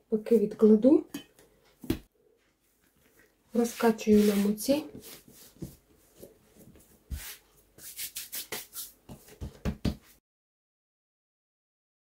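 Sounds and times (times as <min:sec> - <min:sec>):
hands patting dough: 0:03.6 - 0:10.2.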